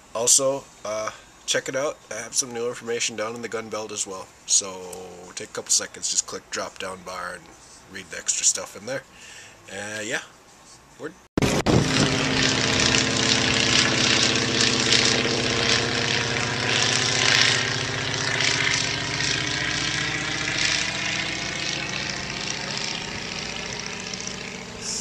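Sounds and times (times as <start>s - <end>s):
propeller plane flying overhead: 11.4s - 25.0s.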